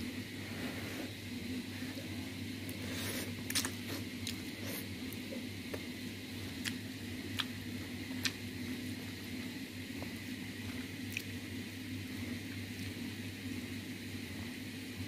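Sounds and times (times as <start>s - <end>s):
chewing: 3.1s - 4.8s, 6.6s - 8.4s.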